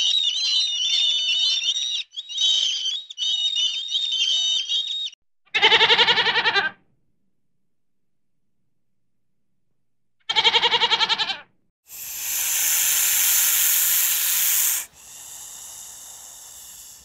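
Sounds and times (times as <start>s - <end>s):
goat bleating: 5.5s - 6.8s, 10.3s - 11.4s
snake hissing: 11.9s - 17.0s.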